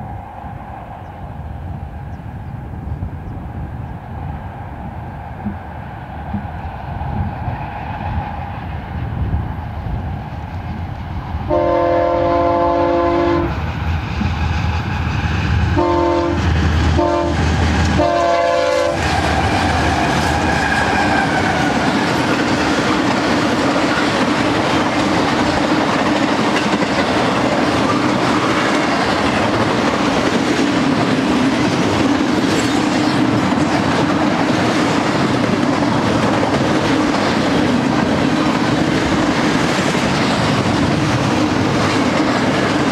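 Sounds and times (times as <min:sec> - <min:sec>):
diesel locomotives passing: 0:00.0 - 0:42.9
train cars rumbling and clacking: 0:00.0 - 0:42.9
locomotive air horn: 0:11.5 - 0:13.6, 0:15.8 - 0:19.3.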